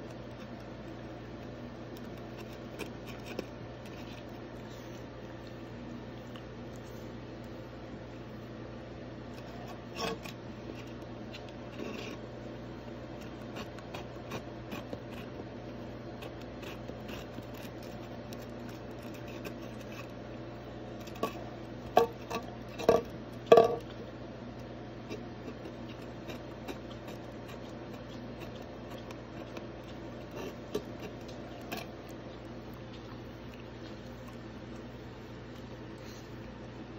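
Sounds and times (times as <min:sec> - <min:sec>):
cup knocking: 0:22.8 - 0:23.8.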